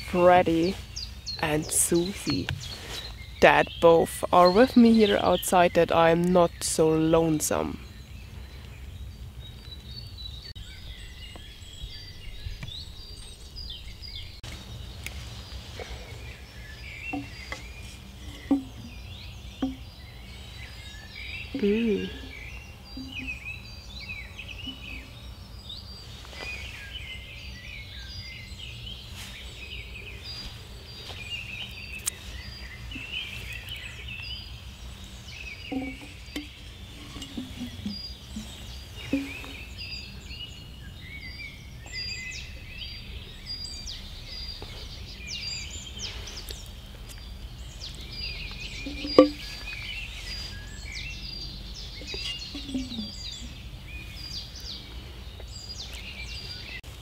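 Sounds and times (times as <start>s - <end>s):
songbirds chirping and trilling: 0.0s - 57.0s
faint knocks: 18.3s - 18.9s, 19.6s - 19.9s, 35.7s - 39.6s, 48.9s - 49.4s.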